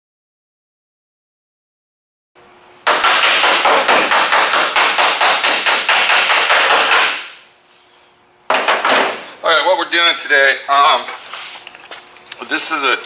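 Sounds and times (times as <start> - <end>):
hammer striking sheet metal: 2.9 - 7.4.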